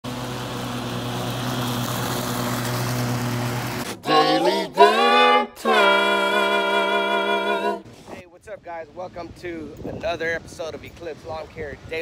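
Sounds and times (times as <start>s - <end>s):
leaf blower running: 0.0s - 5.1s
melodic intro of pitched notes: 4.0s - 7.8s.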